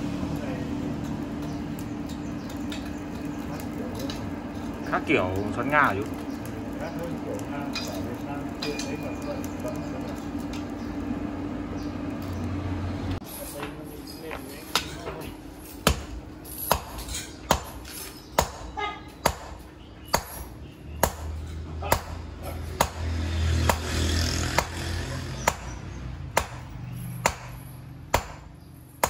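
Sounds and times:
hammer clanking on steel: 0:13.6 - 0:23.0.

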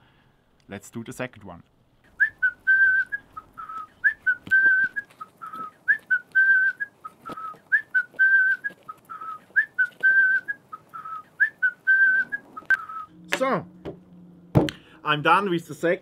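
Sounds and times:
person whistling a tune: 0:02.2 - 0:13.1.

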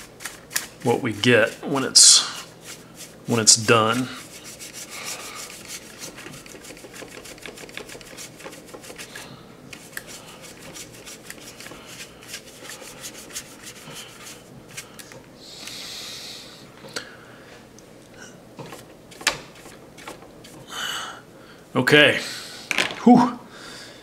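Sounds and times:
brush scrubbing paint: 0:00.0 - 0:15.0, 0:18.6 - 0:20.7.

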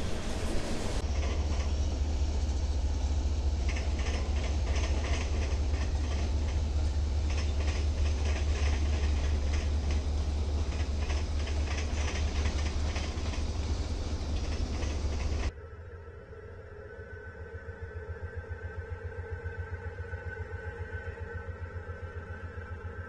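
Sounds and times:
diesel locomotive droning: 0:00.0 - 0:23.0
high-pitched clicks and rattles: 0:03.6 - 0:15.5.

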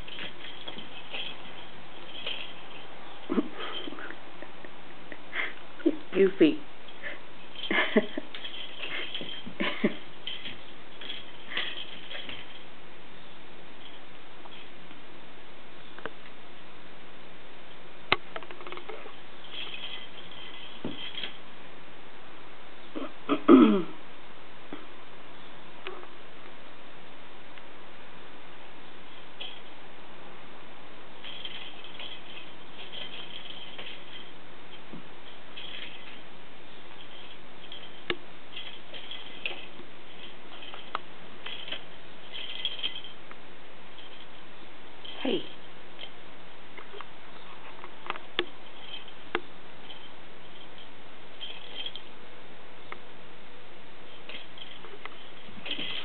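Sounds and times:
light high rattling: 0:00.0 - 0:15.0, 0:17.7 - 0:21.7, 0:28.9 - 0:29.9, 0:31.1 - 0:53.0, 0:53.8 - 0:56.0.

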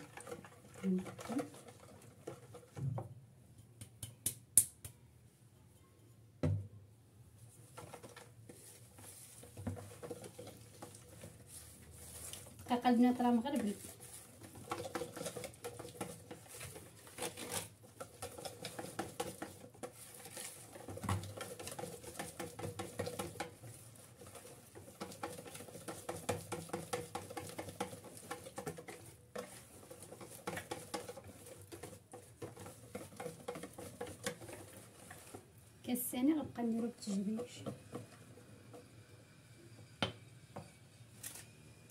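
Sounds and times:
whisk beating batter: 0:00.0 - 0:02.8, 0:07.7 - 0:39.8
whisk wires tapping bowl: 0:07.7 - 0:39.1.

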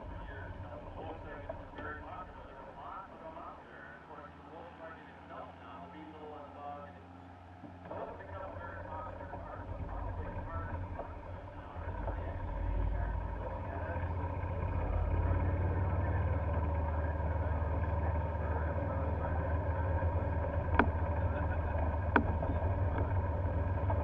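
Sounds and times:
golf cart rumbling: 0:00.0 - 0:24.0
sharp knocks: 0:22.1 - 0:23.1.

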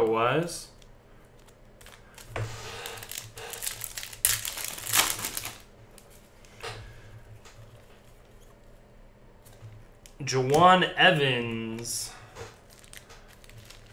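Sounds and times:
cards being handled: 0:00.8 - 0:06.6, 0:11.4 - 0:13.9
foil wrapper crinkling and tearing: 0:01.4 - 0:06.1, 0:12.5 - 0:13.9.

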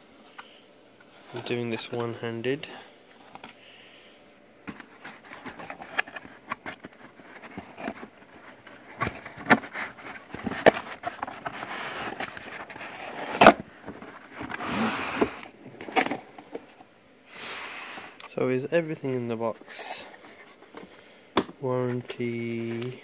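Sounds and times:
cardboard and foam rustling: 0:04.6 - 0:16.8.

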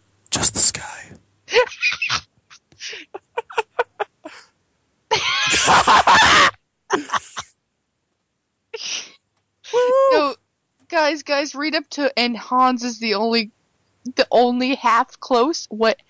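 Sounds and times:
people laughing: 0:01.5 - 0:02.2, 0:02.8 - 0:04.4, 0:05.1 - 0:07.4.

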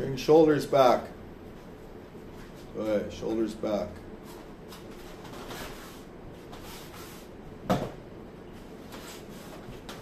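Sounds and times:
faint shuffling: 0:01.5 - 0:07.3.

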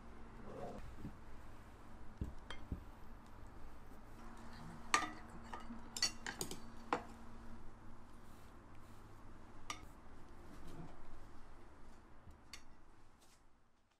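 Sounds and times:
utensils clinking on ceramic bowl: 0:04.8 - 0:07.1.

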